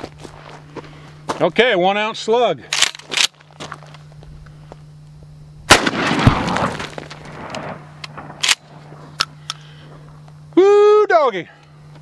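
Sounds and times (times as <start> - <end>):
shotgun blast echoing: 5.7 - 8.8.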